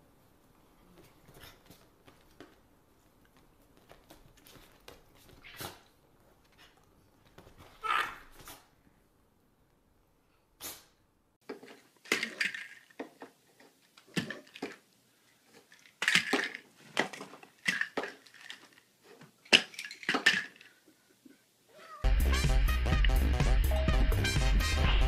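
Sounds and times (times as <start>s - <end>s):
small bottles clinking: 11.4s - 14.9s, 15.5s - 20.8s
music: 22.0s - 25.0s.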